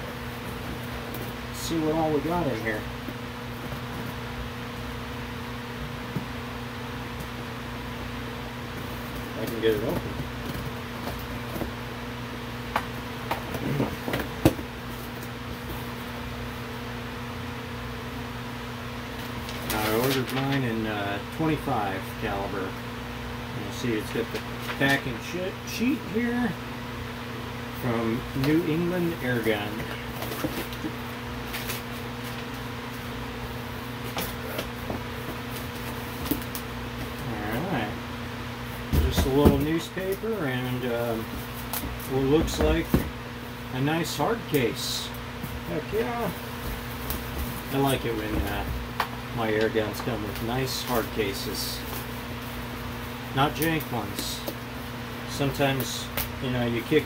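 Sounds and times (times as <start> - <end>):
steady low hum: 0.0 - 57.0
packing paper crinkling: 19.2 - 20.7.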